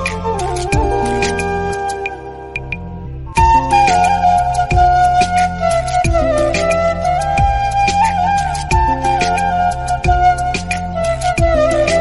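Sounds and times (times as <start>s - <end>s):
melody over repeating bass line: 0.7s - 5.2s.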